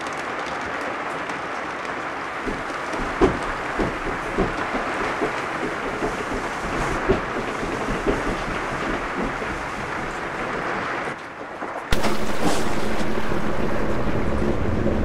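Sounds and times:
steady rushing noise: 11.9s - 15.0s.

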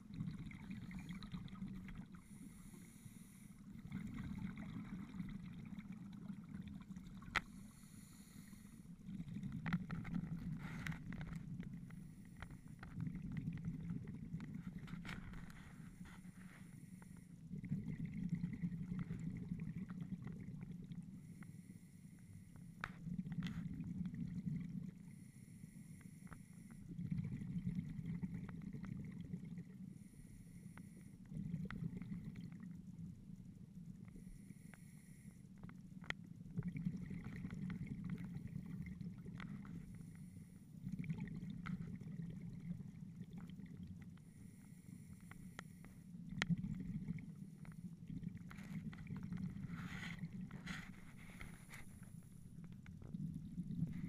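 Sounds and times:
exhaled bubbles rushing: 0.0s - 2.8s, 3.5s - 7.6s, 8.8s - 11.9s, 12.5s - 15.7s, 17.5s - 21.2s, 23.0s - 25.0s, 26.8s - 29.8s, 31.3s - 33.2s, 36.5s - 39.9s, 40.8s - 44.1s, 46.2s - 54.0s.

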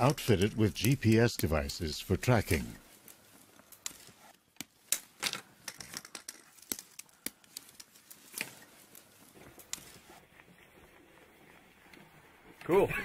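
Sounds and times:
hands handling small parts: 0.0s - 10.1s.

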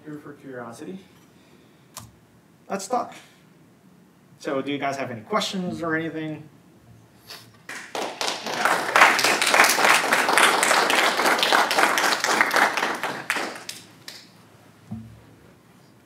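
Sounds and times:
audience applauding: 7.6s - 14.3s.

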